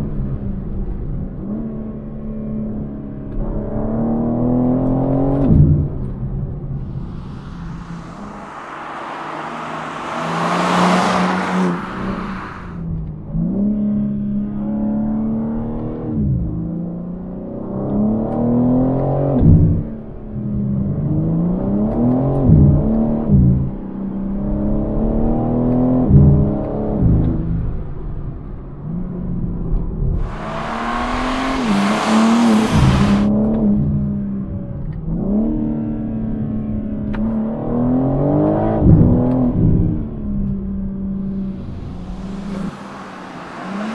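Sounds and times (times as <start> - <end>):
car engine accelerating hard: 0.8 - 27.4, 30.2 - 43.9
car passing by: 6.8 - 12.9, 30.2 - 33.3, 41.2 - 43.9
tyres and air rushing past: 6.8 - 12.9, 30.2 - 33.3, 41.2 - 43.9
car engine heard from cabin: 30.2 - 33.3, 41.2 - 43.9.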